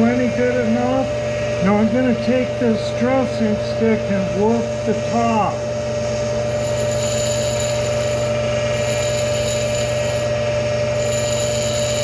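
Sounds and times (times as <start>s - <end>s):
grinder wheel whining: 4.4s - 12.0s.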